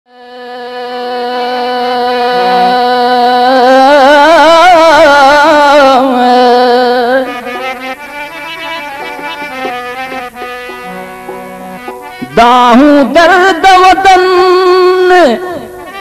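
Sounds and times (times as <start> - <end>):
man singing long vibrato note: 0.1 - 7.5
steady drone: 2.1 - 3.6
plucked strings: 2.2 - 3.2
drum strokes: 2.3 - 3.1, 7.5 - 12.9.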